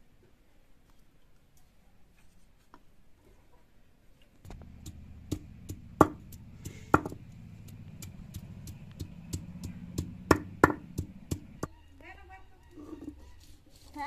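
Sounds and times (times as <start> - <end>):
stone-on-stone knocks: 5.7 - 7.2.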